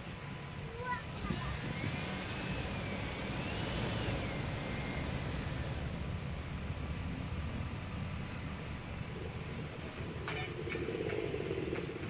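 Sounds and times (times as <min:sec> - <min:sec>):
distant jet engines rumbling: 0:07.0 - 0:12.0.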